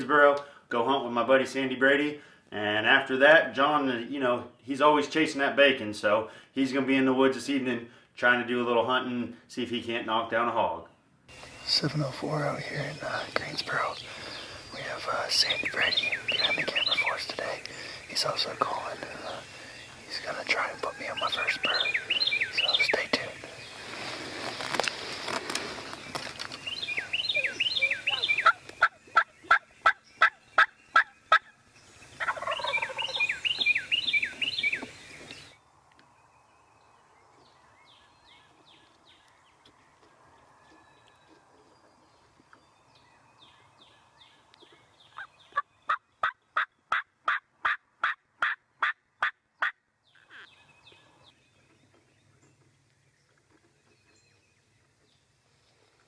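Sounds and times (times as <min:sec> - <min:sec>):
turkey gobbling: 0:27.0 - 0:31.5, 0:32.2 - 0:33.5, 0:45.2 - 0:49.8
turkey yelps: 0:45.9 - 0:49.7.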